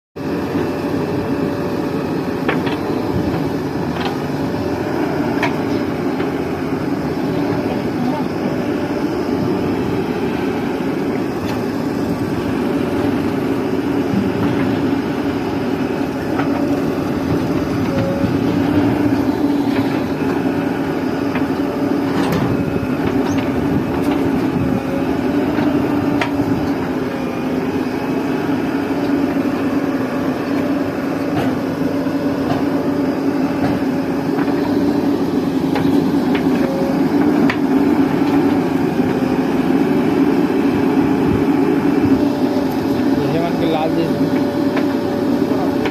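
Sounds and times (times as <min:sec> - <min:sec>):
diesel engines running: 0:00.2 - 0:45.9.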